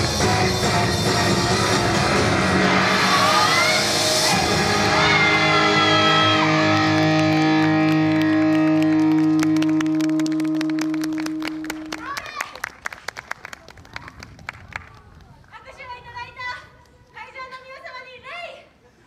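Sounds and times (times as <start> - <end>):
rock music with electric guitar: 0.0 - 11.8
hand claps: 6.8 - 15.3.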